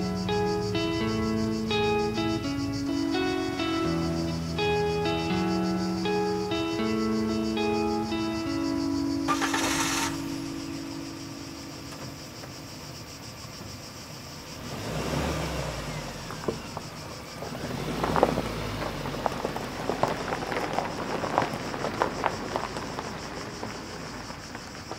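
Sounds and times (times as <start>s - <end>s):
car engine pulling away: 0.0s - 24.9s
insects chirring: 0.0s - 24.9s
tyres crackling over gravel: 15.6s - 24.9s.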